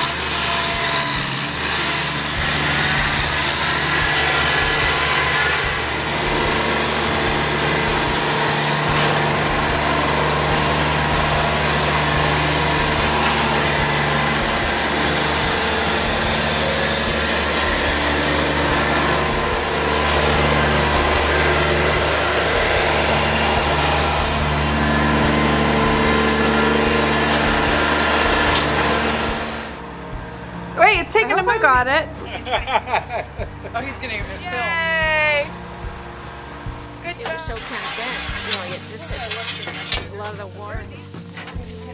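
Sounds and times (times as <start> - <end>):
tractor diesel engine running: 0.0 - 41.9.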